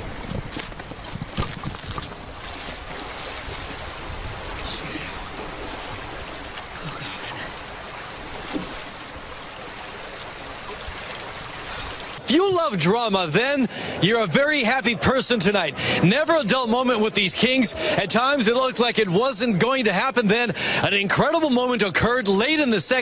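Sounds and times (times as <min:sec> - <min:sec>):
creek rushing: 0:00.0 - 0:12.2
man tumbling down bank: 0:00.0 - 0:12.2
wind on microphone: 0:00.0 - 0:12.2.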